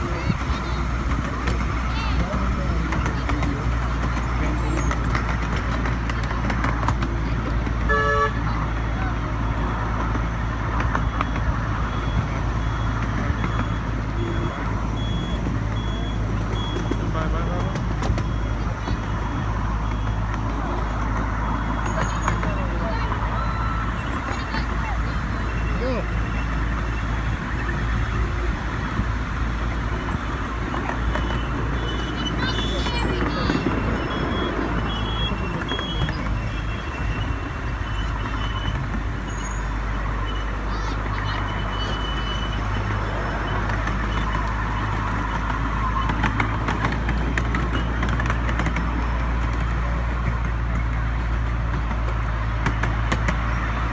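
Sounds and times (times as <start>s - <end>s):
miniature train rumbling on track: 0.0s - 53.9s
short electronic warning beeps: 11.0s - 17.0s.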